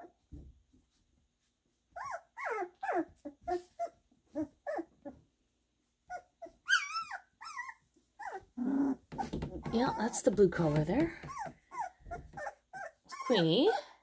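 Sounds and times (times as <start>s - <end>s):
puppies yipping and whining: 1.9s - 5.3s, 6.0s - 14.0s
puppy shrill yelp: 6.6s - 8.4s.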